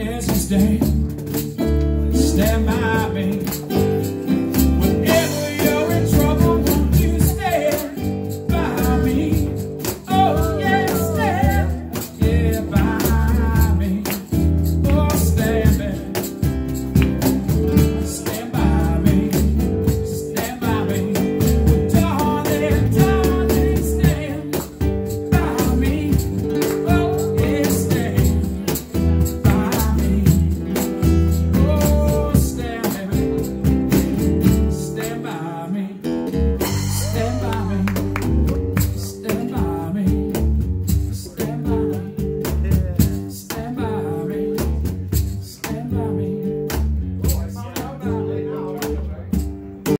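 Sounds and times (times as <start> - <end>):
acoustic guitar strumming: 0.0 - 49.9
hand percussion: 0.2 - 35.4, 36.6 - 43.8
person singing: 5.0 - 16.2, 17.7 - 28.6, 36.6 - 40.3, 41.2 - 44.8, 47.6 - 49.0.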